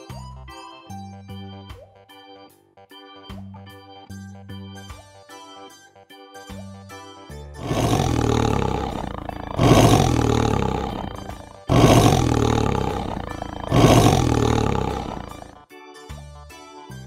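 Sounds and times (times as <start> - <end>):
tiger growling and roaring: 7.6 - 15.6.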